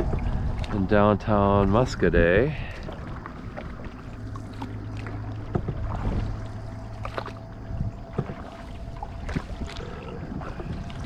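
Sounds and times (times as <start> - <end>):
paddle strokes in water: 0.0 - 11.0
small knocks: 5.4 - 6.4.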